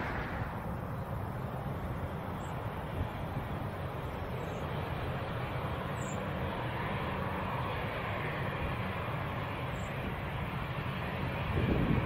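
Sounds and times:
jet engines idling: 0.0s - 12.0s.

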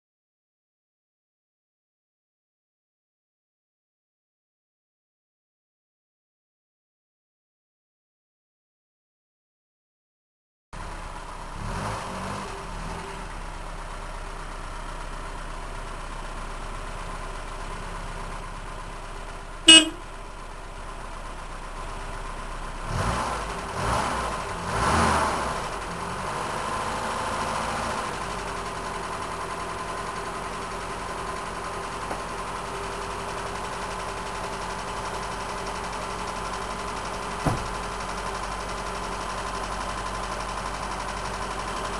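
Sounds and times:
car engine idling: 10.8s - 11.6s, 13.3s - 24.6s, 28.2s - 41.9s
engine revving: 11.5s - 13.2s, 22.8s - 28.6s.

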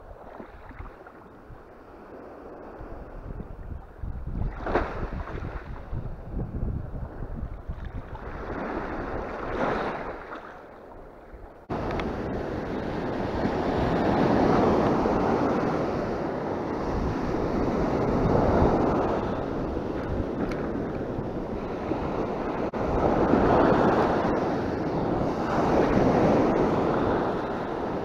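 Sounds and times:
wind buffeting microphone: 0.0s - 10.3s, 11.0s - 28.0s
waves washing on sand: 11.7s - 28.0s.

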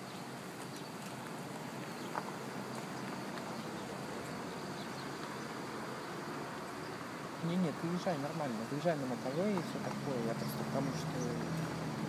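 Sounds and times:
car road and engine noise: 0.0s - 12.0s.

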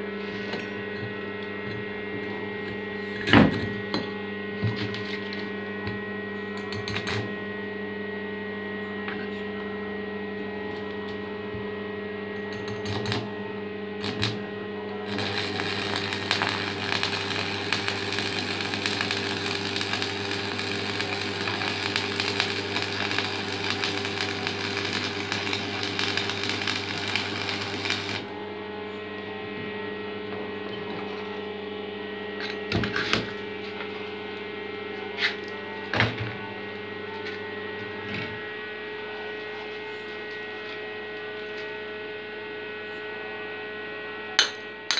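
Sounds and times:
welder humming: 0.0s - 7.7s, 12.3s - 31.7s
welding arc crackling: 14.0s - 14.4s, 15.0s - 28.3s.

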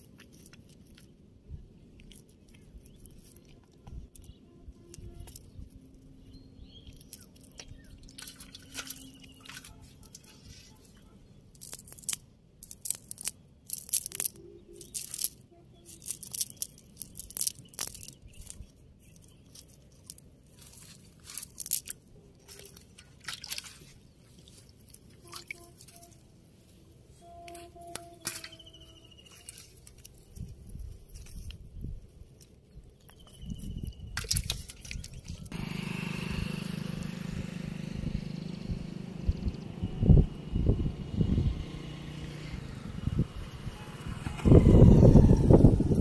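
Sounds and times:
nylon net rustling and crunching: 2.0s - 33.0s.

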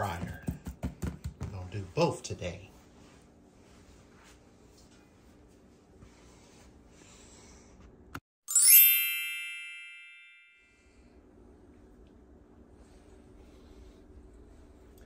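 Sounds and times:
bell-like transition chime: 8.5s - 11.0s.

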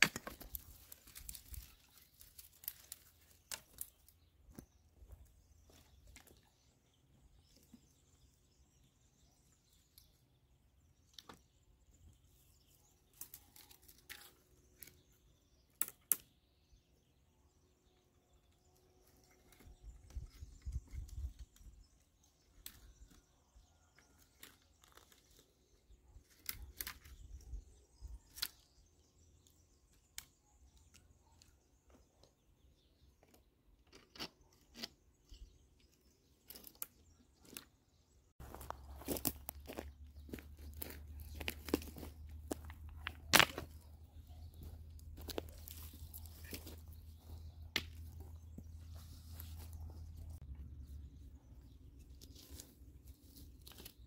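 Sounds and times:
sticks snapping and crackling: 0.0s - 4.2s, 13.1s - 15.0s, 15.7s - 16.3s, 26.2s - 27.4s, 28.3s - 28.7s, 39.0s - 43.9s
faint birdsong: 0.0s - 54.0s.

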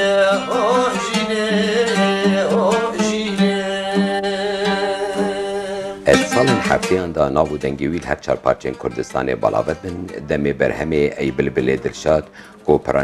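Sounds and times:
man singing long held notes: 0.0s - 7.2s
instrumental accompaniment: 0.0s - 13.0s.

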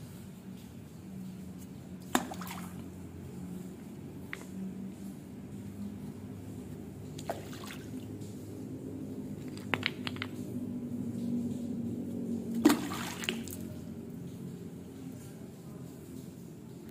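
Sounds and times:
wood blocks splashing into water: 2.0s - 2.8s, 12.6s - 13.6s.

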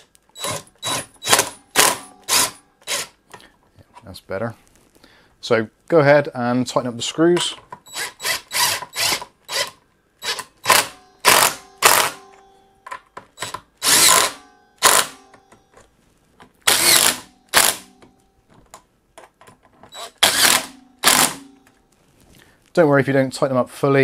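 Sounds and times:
impact driver hammering screws: 0.0s - 3.1s, 7.4s - 12.2s, 13.4s - 15.2s, 16.6s - 18.1s, 19.9s - 21.6s.

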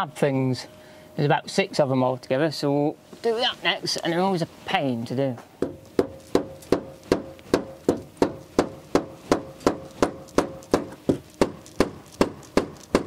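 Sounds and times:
hammer striking metal: 5.6s - 13.0s.

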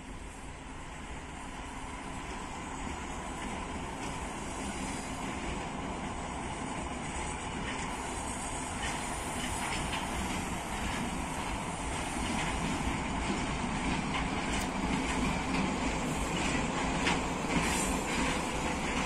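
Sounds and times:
locomotive engine and wheels rumbling: 0.0s - 19.0s
wheels clicking over rail joints: 8.7s - 19.0s.

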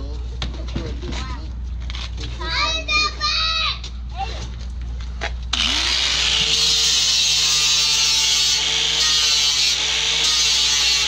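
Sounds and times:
angle grinder grinding metal: 5.5s - 11.0s.

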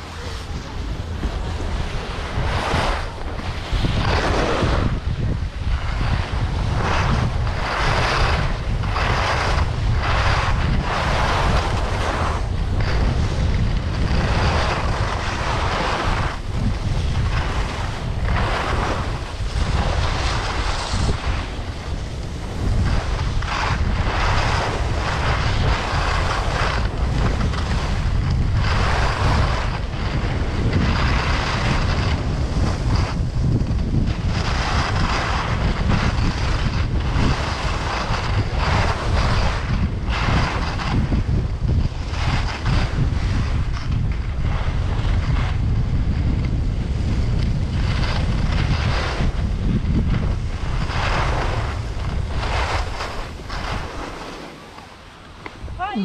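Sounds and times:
skis hissing on snow: 0.0s - 5.1s, 14.0s - 28.0s
wind buffeting microphone: 0.0s - 56.0s.

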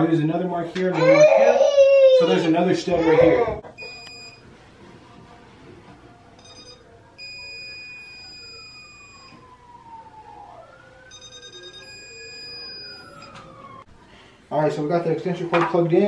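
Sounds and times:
stud finder beeping: 3.8s - 4.4s, 6.4s - 9.4s
siren wailing: 6.4s - 13.9s.

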